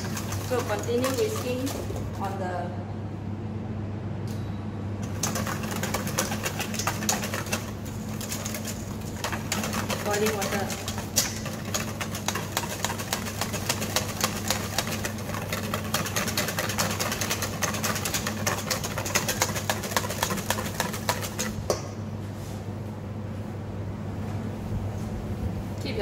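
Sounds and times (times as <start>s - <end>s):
whisk ticking against metal bowl: 0.0s - 1.9s, 5.1s - 21.6s.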